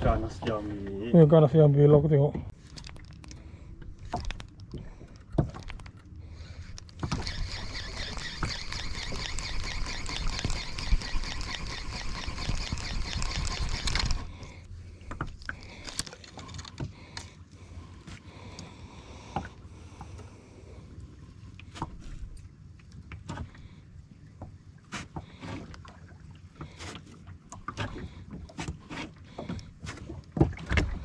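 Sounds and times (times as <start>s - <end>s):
fishing reel ticking whir: 6.8s - 14.5s.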